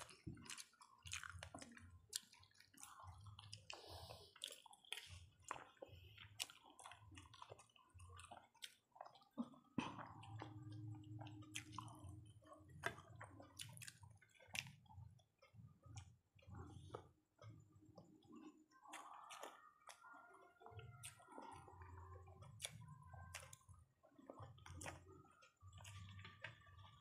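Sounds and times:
people chewing food: 0.0 - 27.0
fingers squelching food: 10.4 - 27.0.

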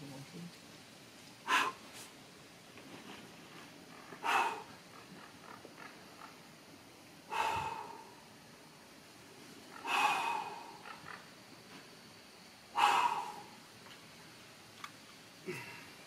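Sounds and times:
person exhaling with grunts: 9.8 - 10.8, 15.4 - 15.9.

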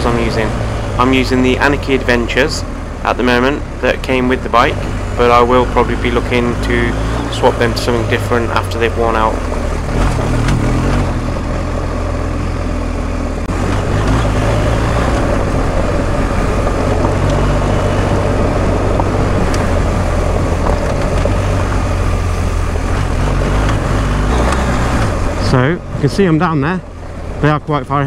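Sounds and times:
motorcycle engine running: 0.0 - 28.0
wind rush: 9.2 - 26.3.

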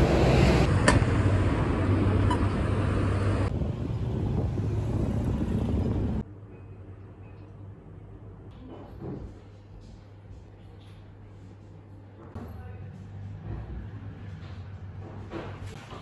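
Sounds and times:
street traffic noise: 0.0 - 6.2.

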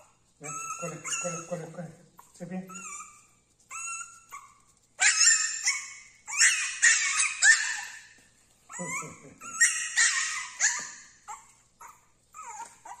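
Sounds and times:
puppy yapping: 0.0 - 13.0.

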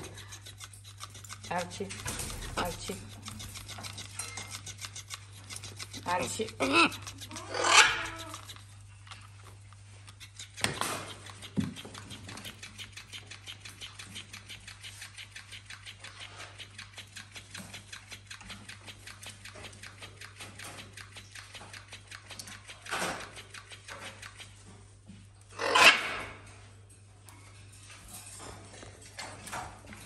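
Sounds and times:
toy fish tail whirring: 0.0 - 8.7.

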